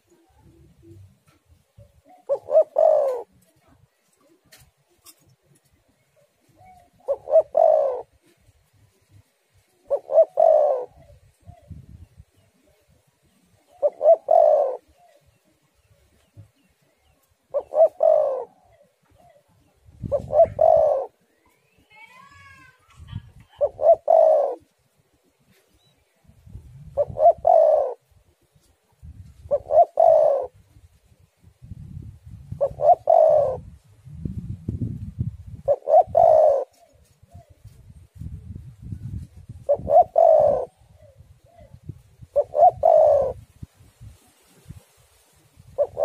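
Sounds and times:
dove cooing: 0.0 - 5.2, 6.1 - 12.8, 13.5 - 21.4, 23.1 - 24.7, 26.8 - 28.7, 29.3 - 31.0, 32.5 - 33.7, 35.4 - 38.4, 39.2 - 43.4, 45.6 - 46.0.

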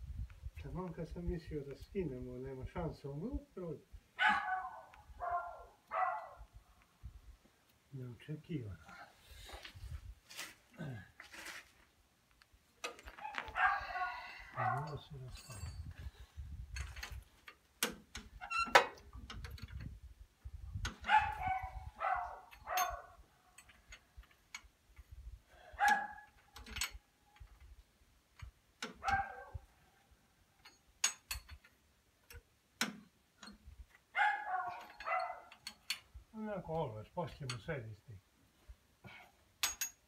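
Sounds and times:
metal clicks of hand tools: 16.7 - 19.9, 22.5 - 25.1, 25.9 - 27.7, 28.3 - 29.2, 30.6 - 34.1, 34.8 - 36.2, 39.6 - 40.0.

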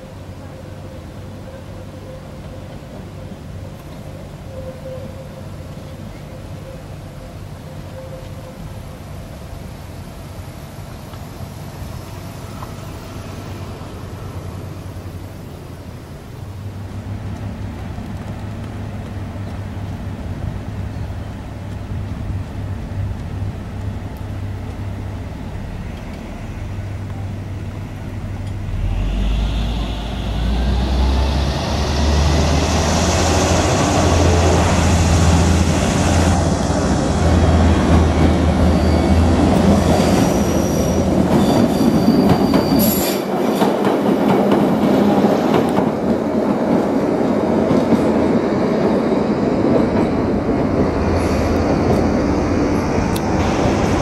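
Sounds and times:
train wheels rumbling on rail: 0.0 - 54.0
clickety-clack of wheels: 16.8 - 24.9, 39.4 - 49.0
high wheel squeal: 38.2 - 43.7.

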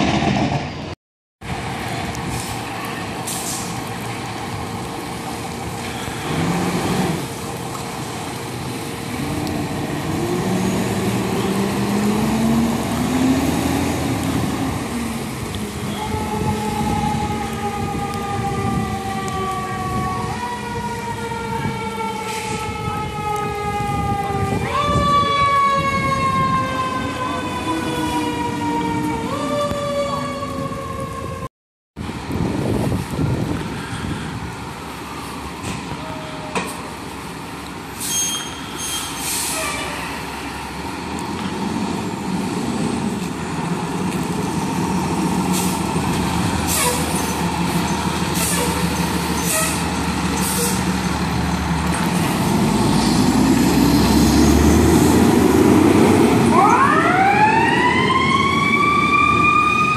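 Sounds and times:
diesel engine idling and revving: 1.5 - 18.9, 39.9 - 59.9
fire truck siren wailing: 1.5 - 31.5, 43.0 - 59.9
air brake hisses: 38.0 - 40.1.

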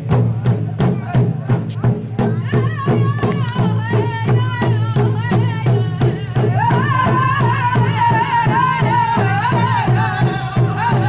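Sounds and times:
hand drum steady beat: 0.0 - 11.0
group singing high-pitched: 2.3 - 11.0.

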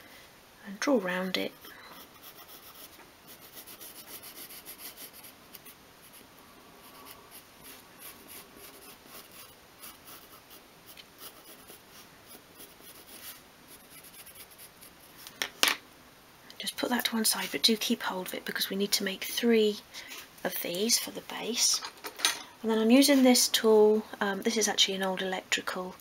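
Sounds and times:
pencil scratching on wood: 2.0 - 6.2, 6.8 - 15.0.

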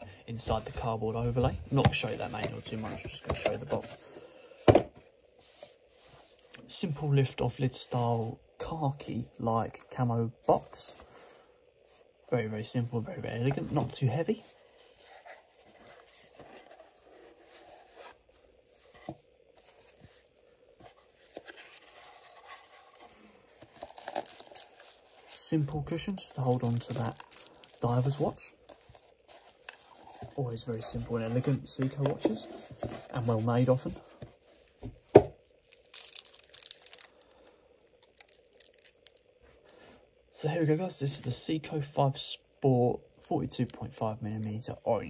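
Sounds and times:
faint electrical hum: 0.0 - 45.0
glove rustling: 12.9 - 39.7
cardboard box rustling and scraping: 28.7 - 34.8.

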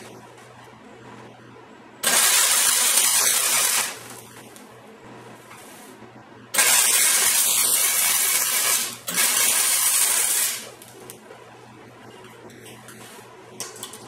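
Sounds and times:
welder arc hissing and crackling: 2.0 - 4.7, 5.4 - 11.3.

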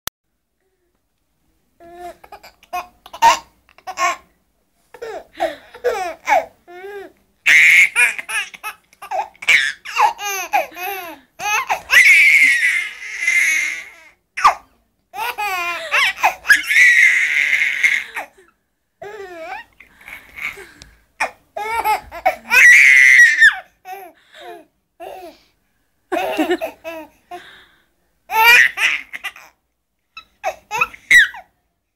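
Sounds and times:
baby laughing: 1.9 - 4.2, 7.5 - 14.6, 15.2 - 18.3, 19.1 - 24.5, 26.1 - 27.1, 28.3 - 29.5, 30.2 - 31.4.

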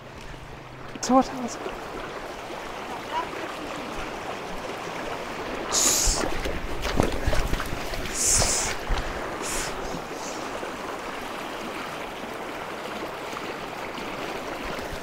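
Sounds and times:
stream running over rocks: 0.0 - 15.0
hissing splashes: 5.1 - 10.8.

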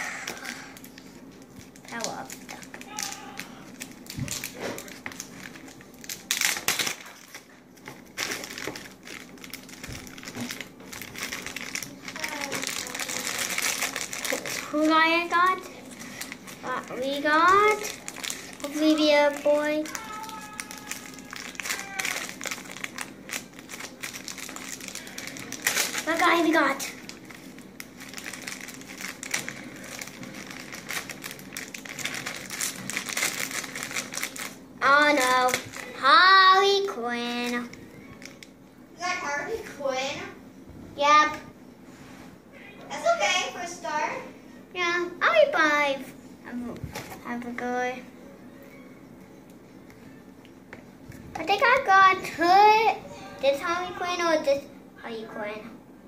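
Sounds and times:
plastic wrapper crinkling: 0.3 - 38.6.

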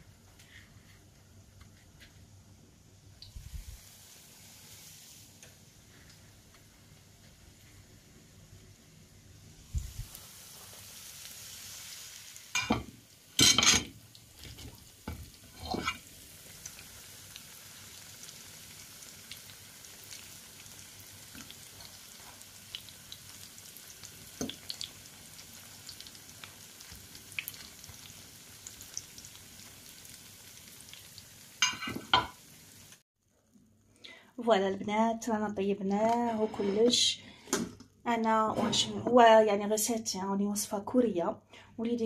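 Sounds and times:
skewers sizzling in hot oil: 3.2 - 7.8, 9.5 - 33.0
fork clattering in pan: 12.6 - 13.9.

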